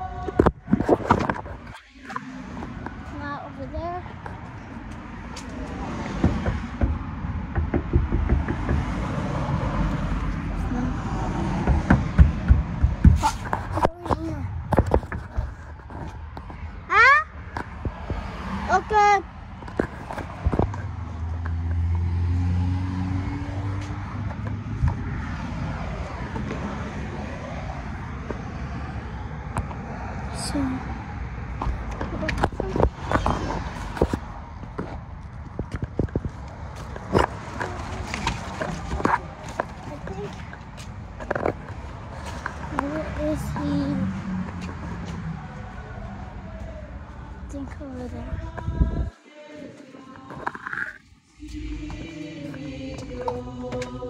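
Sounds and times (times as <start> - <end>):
car engine hum: 0.0 - 49.1, 50.2 - 54.0
tyres rushing on road: 0.0 - 54.0
camera handling rumble: 0.3 - 2.9.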